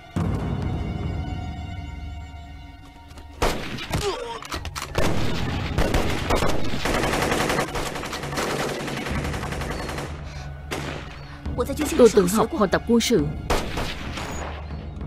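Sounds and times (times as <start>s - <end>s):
rifle and machine-gun shots: 4.9s - 11.2s, 13.5s - 14.7s.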